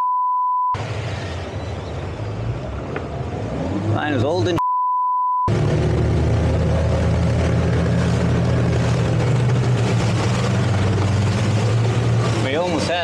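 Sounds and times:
churning water: 5.5s - 13.0s
outboard motor drone: 5.5s - 13.0s.

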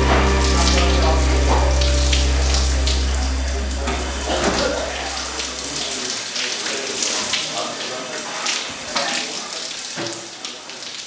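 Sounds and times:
low steady hum: 0.0s - 6.1s
shower water splashing: 0.0s - 11.0s.

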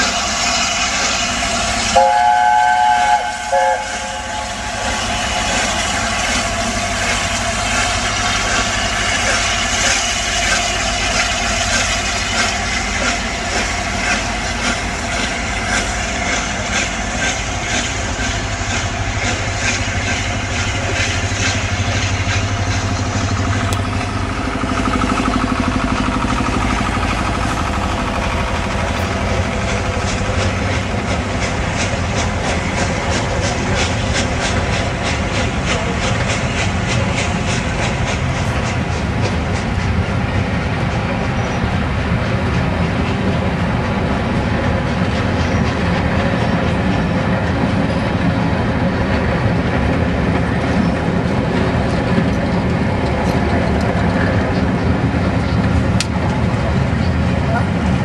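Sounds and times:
train rumbling past: 0.0s - 58.0s
train horn blast: 1.9s - 4.9s
wheels clicking over rail joints: 5.5s - 58.0s.

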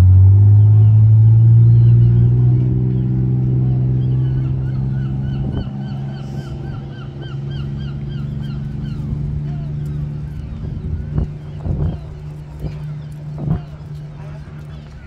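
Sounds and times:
boat engine droning: 0.0s - 15.0s
gull calling: 3.6s - 10.0s.

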